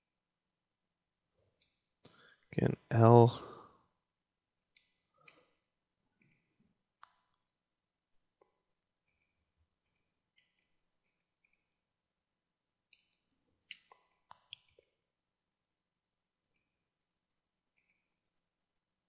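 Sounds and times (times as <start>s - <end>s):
computer mouse and keyboard clicks: 9.0s - 11.7s, 12.9s - 14.9s, 17.8s - 18.1s.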